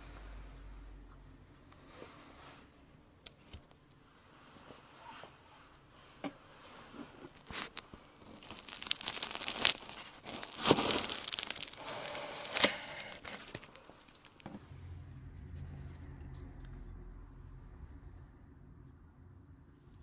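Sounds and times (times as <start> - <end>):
knife sawing through crackling pastry: 8.3 - 14.2.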